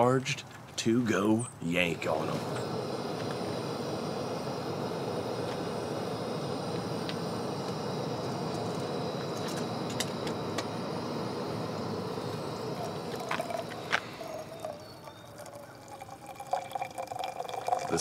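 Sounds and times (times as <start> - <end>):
moka pot hissing and gurgling: 1.7 - 18.0
coffee pouring into metal cup: 2.0 - 18.0
sharp pops: 2.1 - 15.1.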